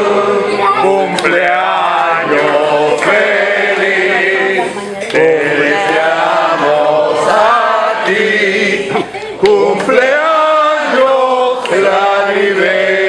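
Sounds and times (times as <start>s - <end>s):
group singing together: 0.0s - 13.0s.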